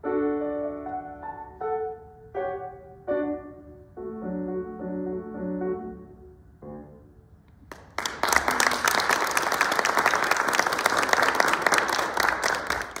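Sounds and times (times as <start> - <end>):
audience applauding: 7.7 - 13.0.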